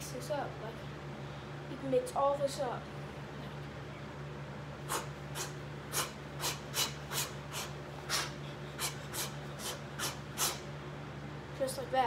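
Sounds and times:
sharp hissing exhalations: 4.8 - 10.7.

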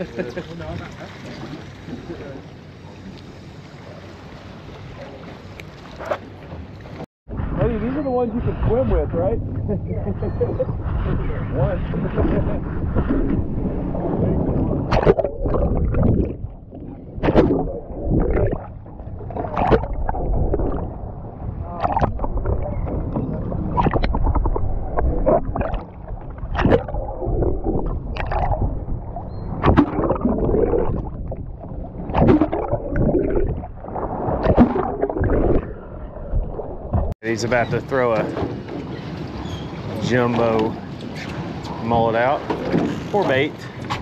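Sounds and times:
water sloshing around a boat: 0.0 - 44.0
sharp splashes or knocks: 14.8 - 16.6, 17.2 - 20.9, 23.7 - 27.1, 29.6 - 35.7.

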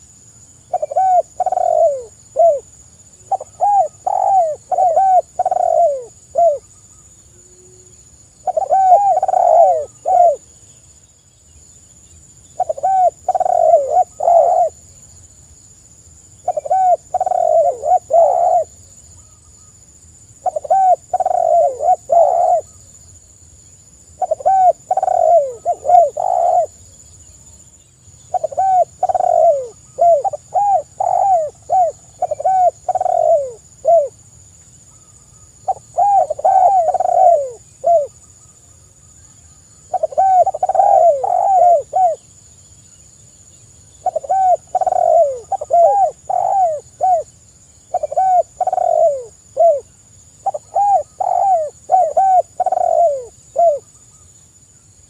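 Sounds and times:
dove cooing: 0.7 - 6.7, 7.4 - 10.5, 12.6 - 14.8, 16.4 - 18.8, 20.4 - 22.8, 24.2 - 26.9, 28.3 - 34.2, 35.6 - 38.2, 39.9 - 42.3, 44.0 - 47.3, 47.9 - 53.9.

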